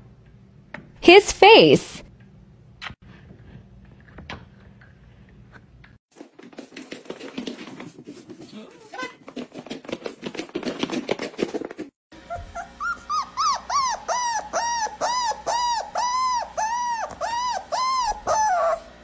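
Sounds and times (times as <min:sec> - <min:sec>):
dog whining: 0:12.2 - 0:19.0.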